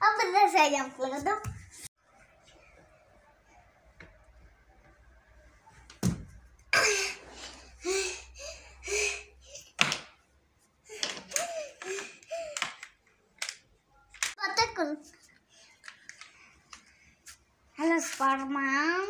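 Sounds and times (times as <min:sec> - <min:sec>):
child landing on floor thud: 0:06.0 - 0:06.4.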